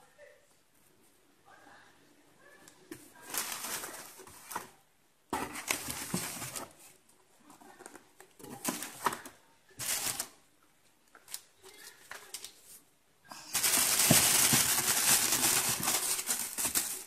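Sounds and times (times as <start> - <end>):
cardboard and plastic rustling: 2.9 - 10.4, 13.4 - 17.0.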